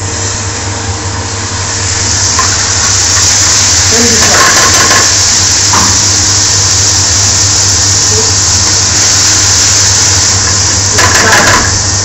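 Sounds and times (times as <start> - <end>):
kitchen extraction rushing: 2.2 - 6.4, 8.0 - 12.0
ladle knocking pan: 4.2 - 6.0, 10.9 - 11.9.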